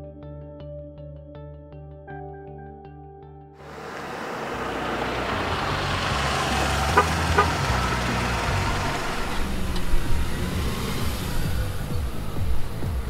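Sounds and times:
car engine and tyre noise: 3.6 - 13.0.

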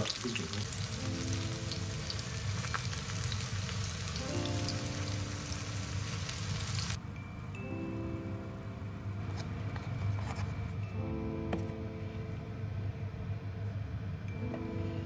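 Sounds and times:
food sizzling in a frying pan: 0.0 - 7.0.

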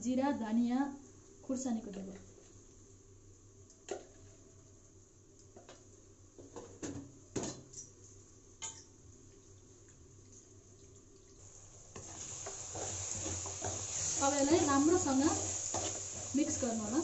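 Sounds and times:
food sizzling in oil: 11.4 - 17.0
spatula stirring in pan: 11.5 - 17.0.

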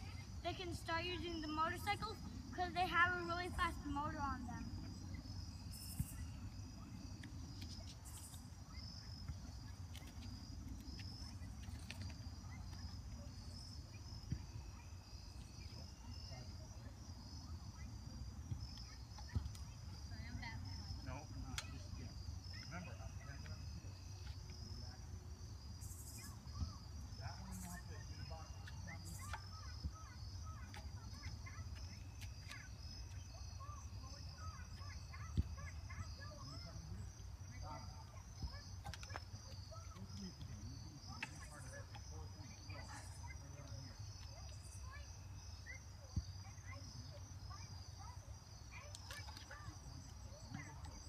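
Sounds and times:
insects chirping: 0.0 - 51.0.

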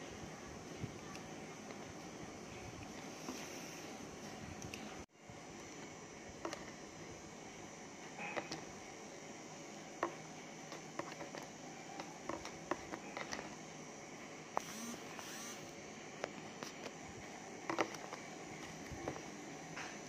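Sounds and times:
chopsticks tapping paper cup: 10.0 - 13.5, 17.7 - 18.2.

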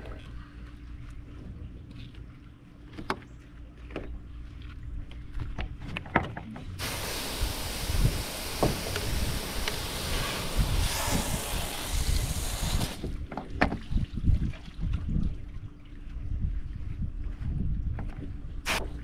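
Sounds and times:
wind rumble on microphone: 4.8 - 19.0
hose sucking with rushing hiss: 6.8 - 13.1.

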